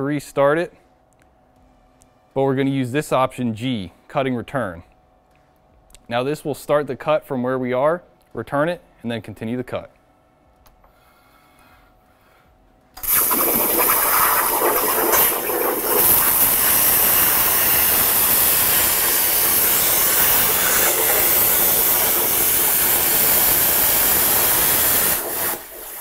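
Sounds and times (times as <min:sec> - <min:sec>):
plasma cutter hissing: 0:13.0 - 0:26.0.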